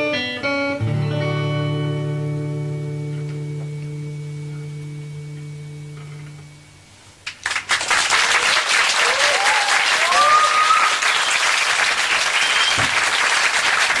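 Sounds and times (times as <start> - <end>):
acoustic guitar chord ringing: 0.0 - 6.8
audience applause: 7.3 - 14.0
audience cheering: 7.5 - 14.0.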